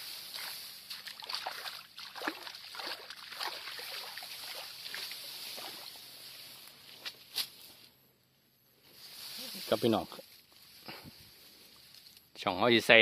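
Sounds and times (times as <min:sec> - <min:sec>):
rice stalks rustling: 0:00.0 - 0:07.9, 0:08.8 - 0:12.2
water sloshing and splashing: 0:00.3 - 0:06.0.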